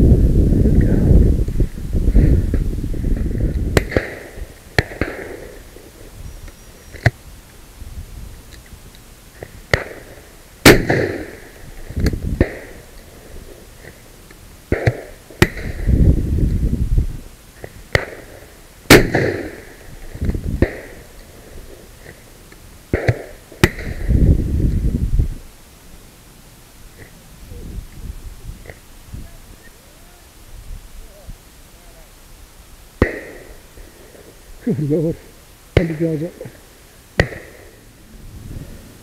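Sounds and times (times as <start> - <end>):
low rumbling: 0.0 - 3.8, 37.7 - 39.0
loud shotgun shots: 3.7 - 5.9, 9.7 - 12.9, 14.7 - 15.9, 17.9 - 19.9, 20.6 - 21.1, 22.9 - 24.1, 33.0 - 34.2, 35.8 - 36.2, 37.2 - 37.8
distant gunshots: 3.7 - 6.0, 9.7 - 11.6, 12.4 - 12.9, 14.7 - 15.9, 17.9 - 19.9, 20.6 - 21.1, 22.9 - 24.1, 33.0 - 34.4, 35.8 - 36.2, 37.2 - 37.8.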